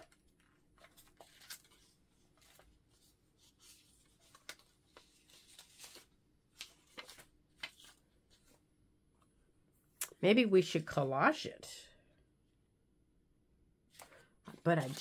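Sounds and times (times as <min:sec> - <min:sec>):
paper rustling: 0:00.0 - 0:08.6, 0:13.9 - 0:15.0.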